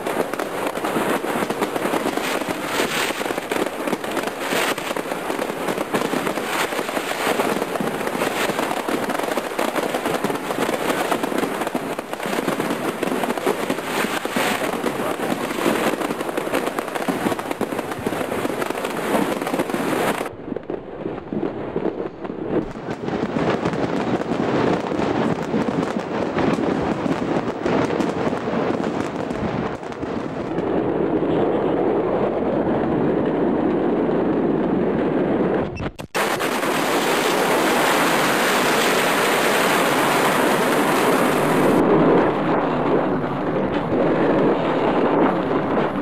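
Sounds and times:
fireworks cracks and bangs: 0.0s - 46.0s
loud rushing noise: 39.1s - 45.0s.

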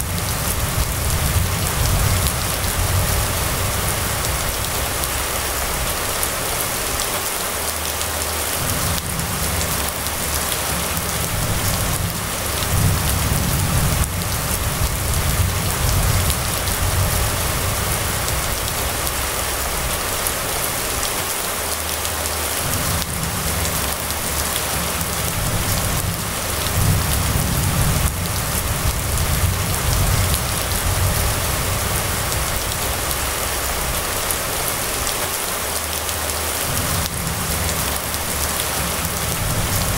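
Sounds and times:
low rumble: 0.0s - 7.0s, 8.5s - 20.9s, 22.6s - 35.1s
rain falling on road and roofs: 0.0s - 39.9s.

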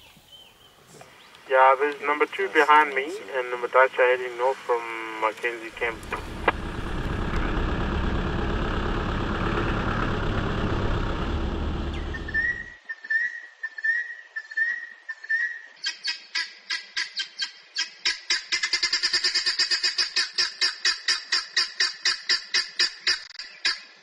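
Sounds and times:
vehicle engine rumble: 0.7s - 12.8s
fast high twittering: 11.9s - 12.8s.

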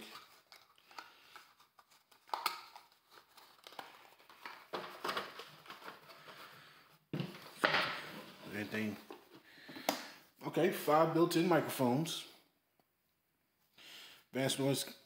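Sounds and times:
packaging rustling: 0.0s - 9.3s.

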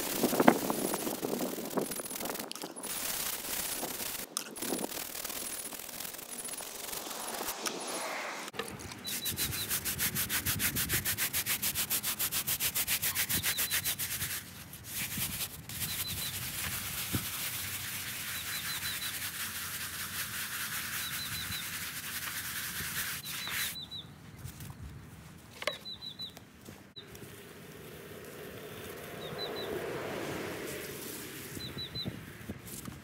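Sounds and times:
bristle brush scrubbing stone: 0.0s - 7.9s, 9.0s - 23.8s
bird chirping: 9.0s - 9.8s, 13.3s - 14.0s, 15.8s - 16.4s, 18.2s - 19.3s, 20.8s - 21.8s, 23.2s - 24.2s, 25.7s - 26.4s, 27.0s - 32.4s.

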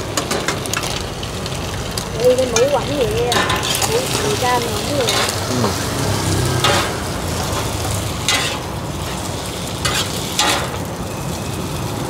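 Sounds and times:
food sizzling in oil: 0.0s - 12.0s
metal spatula scraping pan: 2.5s - 10.9s.

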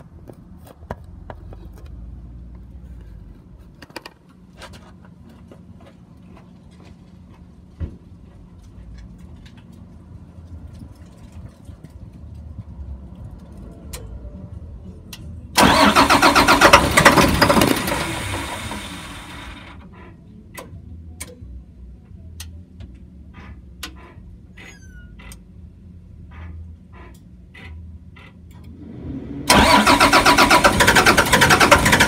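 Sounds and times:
bus engine cranking: 15.6s - 20.1s, 29.5s - 32.0s.

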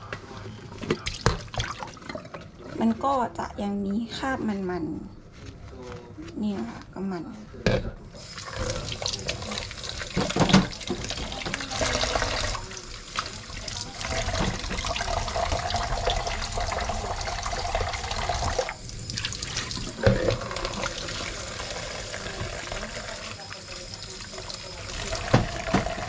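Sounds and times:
water into plastic container: 8.2s - 26.0s
tap running into sink: 8.6s - 17.0s, 24.4s - 26.0s.

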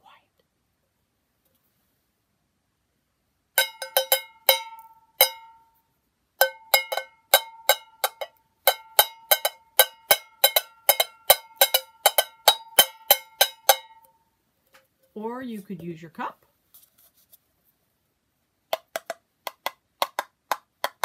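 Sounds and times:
stick beating a can drum: 3.6s - 5.7s, 6.4s - 14.1s, 18.7s - 21.0s.

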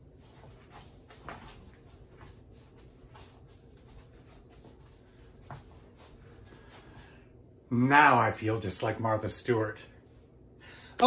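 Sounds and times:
cloth brushing: 0.0s - 7.2s.

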